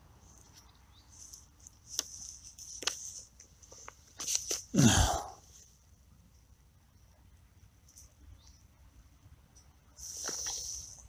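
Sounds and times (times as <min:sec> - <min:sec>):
handling clicks and rustles: 0:00.2 - 0:04.7.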